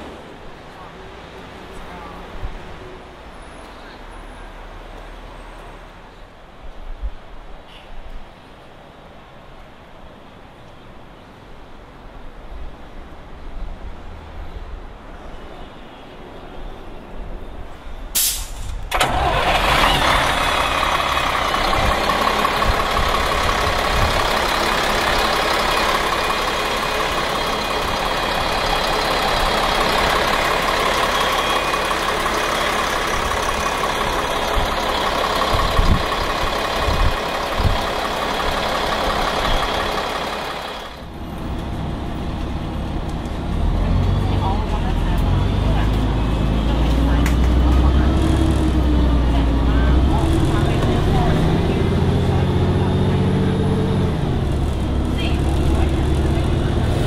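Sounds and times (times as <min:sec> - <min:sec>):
diesel bus engine running: 0:18.2 - 0:57.0.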